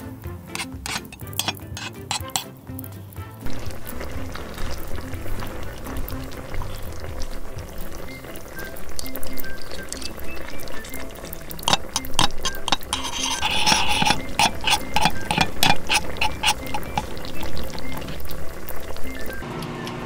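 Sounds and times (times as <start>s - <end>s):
soft background music: 0.0s - 20.0s
spoon stirring sauce in metal pan: 0.5s - 2.6s, 3.5s - 19.4s.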